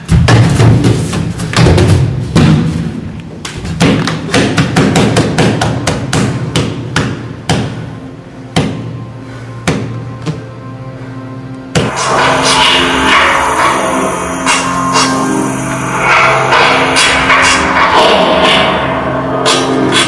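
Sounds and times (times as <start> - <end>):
percussive dance music: 0.0 - 7.9, 11.7 - 20.0
faint sustained tones: 10.4 - 20.0.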